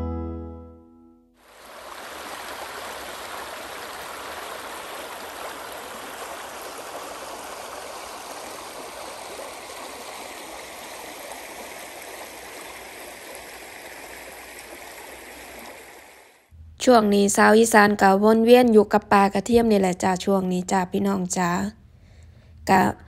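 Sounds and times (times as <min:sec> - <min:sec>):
stream flowing over stones: 0:01.4 - 0:16.5.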